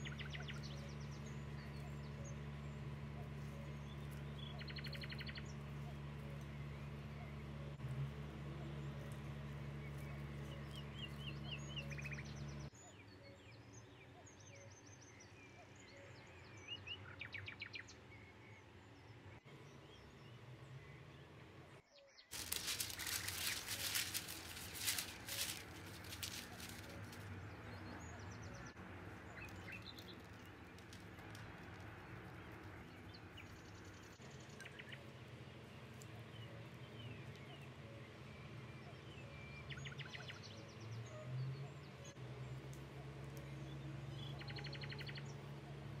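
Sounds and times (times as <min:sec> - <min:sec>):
small birds chirping: 0:00.0 - 0:46.0
low steady hum: 0:18.0 - 0:39.7
rapid clicks: 0:22.3 - 0:27.3.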